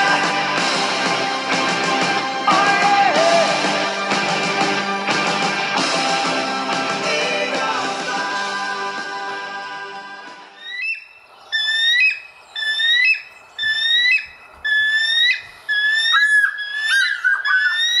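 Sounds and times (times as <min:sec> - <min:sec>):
music: 0:00.0 - 0:10.6
eagle high piping calls: 0:10.6 - 0:18.0.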